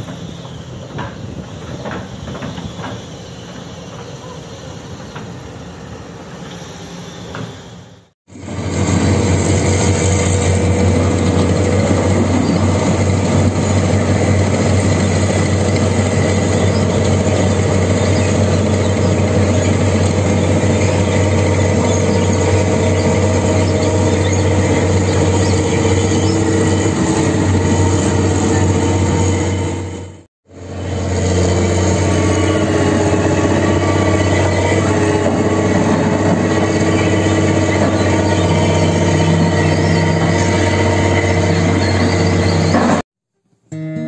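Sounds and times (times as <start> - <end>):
excavator diesel engine running: 8.3 - 43.0.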